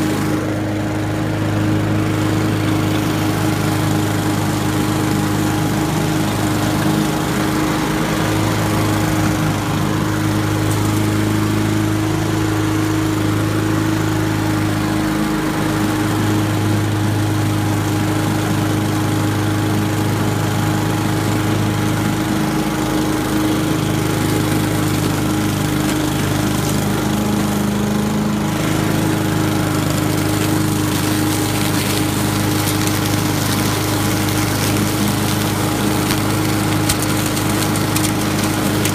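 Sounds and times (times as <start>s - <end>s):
lawn mower engine running: 0.0s - 38.9s.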